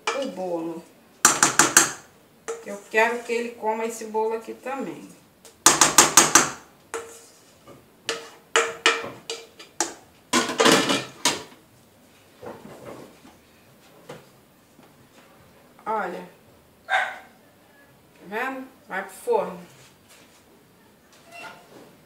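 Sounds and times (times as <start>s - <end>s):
spatula scraping metal bowl: 1.3s - 3.6s, 6.9s - 9.8s.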